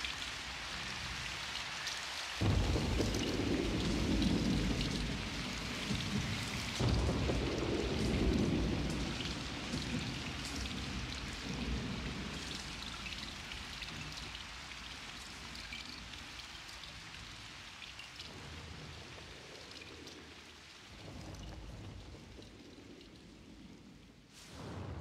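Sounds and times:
steady rain: 0:00.0 - 0:25.0
thunder rolling: 0:02.4 - 0:14.3, 0:18.3 - 0:25.0.

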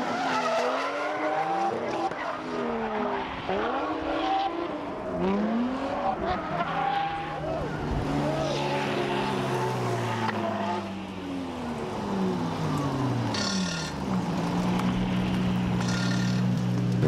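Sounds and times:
high tyre squeals: 0:00.0 - 0:04.8, 0:05.9 - 0:10.9, 0:13.3 - 0:14.1, 0:15.7 - 0:16.6
car engines running hard: 0:00.0 - 0:17.0.

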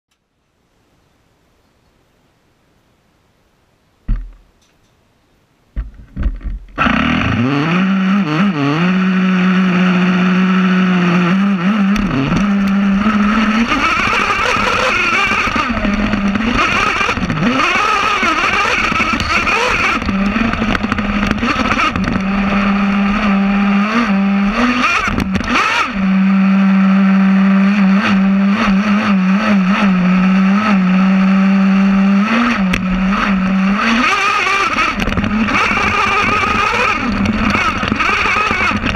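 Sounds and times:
small nitro engine running: 0:06.8 - 0:38.9.

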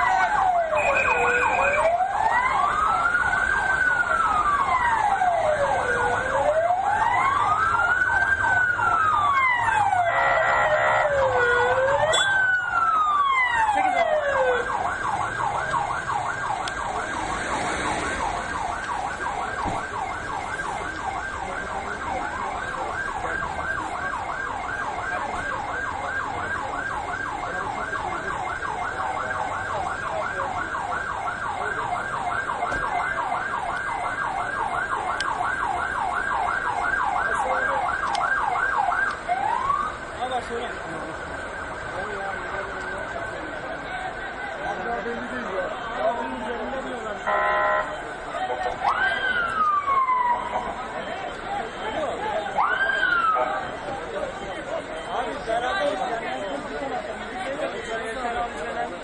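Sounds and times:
second siren: 0:00.0 - 0:57.7
ambulance siren wailing: 0:00.0 - 0:59.0.

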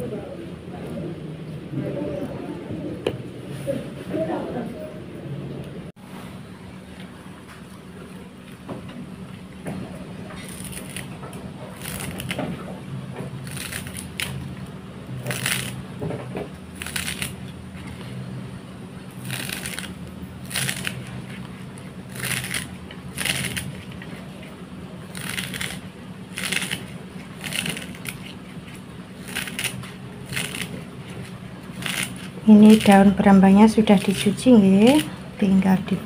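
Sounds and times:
steady low hum: 0:00.0 - 0:36.0
scissors snipping green onion: 0:19.2 - 0:21.0.

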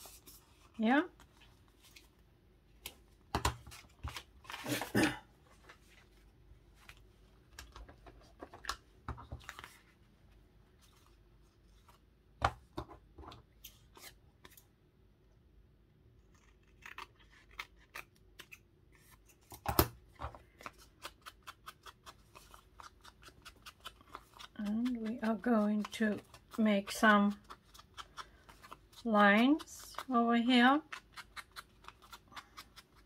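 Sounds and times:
scissors snipping paper: 0:16.2 - 0:19.6, 0:20.5 - 0:33.0.

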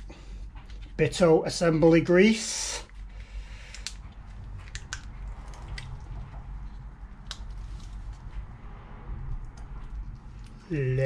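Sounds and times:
low steady hum: 0:00.0 - 0:11.0
grease squishing: 0:03.8 - 0:08.2.

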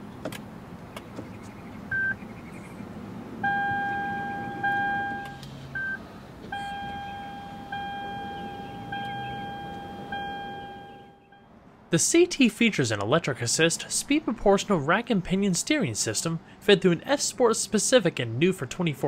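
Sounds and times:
short dashboard beep: 0:03.4 - 0:11.5
ringing chime tone: 0:06.6 - 0:11.5.

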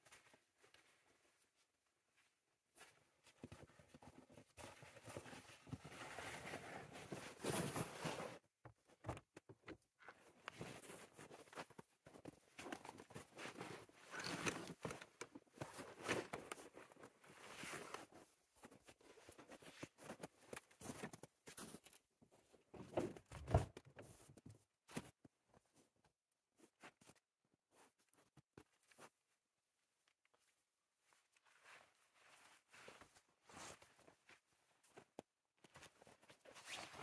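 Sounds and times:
camping gear rustling and bumping: 0:02.2 - 0:26.0.

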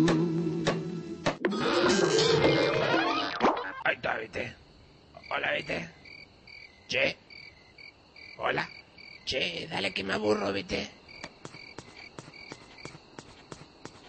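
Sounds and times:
crickets chirping: 0:01.7 - 0:14.0
sharp ticking: 0:11.1 - 0:14.0.

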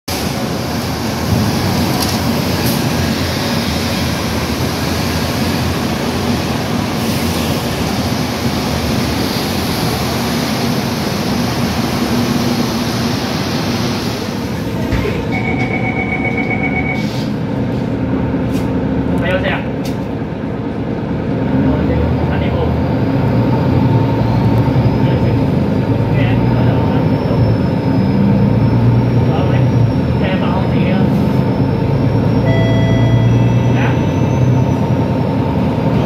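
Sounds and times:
bus engine idling: 0:00.1 - 0:36.0
diesel buses running: 0:00.1 - 0:36.0
rapid high beeping: 0:32.4 - 0:34.2.

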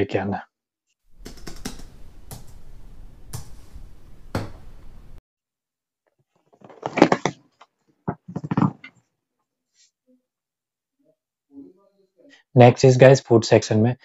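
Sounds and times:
typing clicks: 0:01.2 - 0:02.6
suitcase knocking and clattering: 0:08.1 - 0:08.9.

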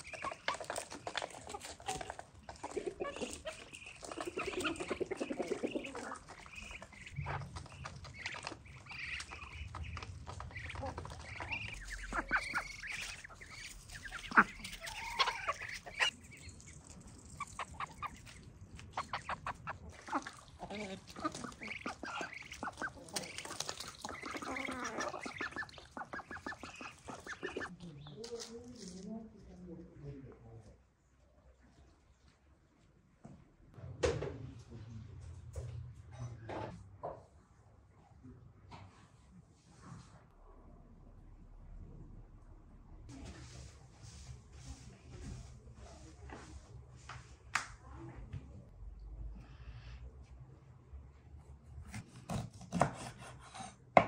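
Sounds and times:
ducks quacking: 0:00.0 - 0:27.7
chickens clucking: 0:00.0 - 0:28.9
bills pecking at grain: 0:00.0 - 0:29.1.

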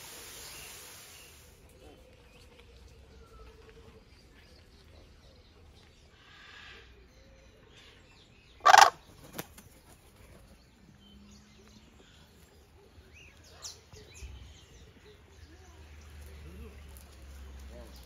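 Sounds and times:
faint bird sounds: 0:00.2 - 0:18.0
loud harsh bird call: 0:08.6 - 0:09.1.

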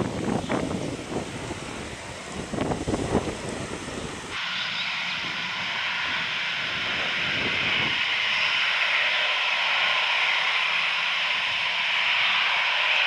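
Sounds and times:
jet engines whining: 0:00.0 - 0:13.0.

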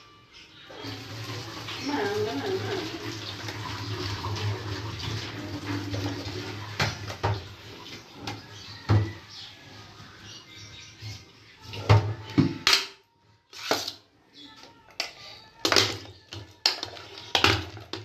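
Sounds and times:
water pouring into sink: 0:00.7 - 0:09.2.

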